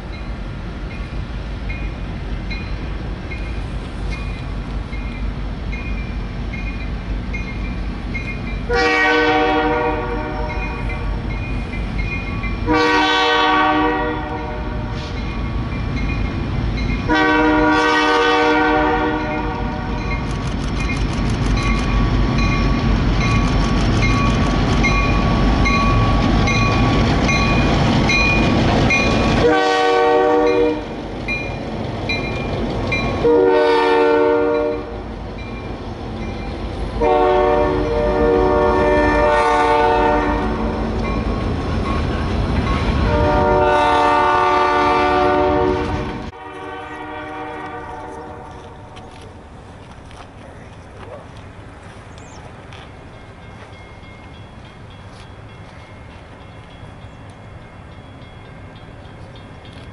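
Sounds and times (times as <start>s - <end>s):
diesel locomotive engines: 0.0s - 59.9s
train wheels rolling on rails: 0.0s - 59.9s
locomotive bell ringing: 4.2s - 8.8s, 10.4s - 12.7s, 14.3s - 17.1s, 19.1s - 29.5s, 30.4s - 33.4s, 34.4s - 36.6s, 41.0s - 43.0s, 53.0s - 59.9s
train air horn blasts: 8.7s - 11.0s, 12.6s - 15.2s, 17.1s - 20.0s, 29.4s - 31.0s, 33.2s - 35.0s, 37.0s - 40.8s, 43.0s - 49.0s.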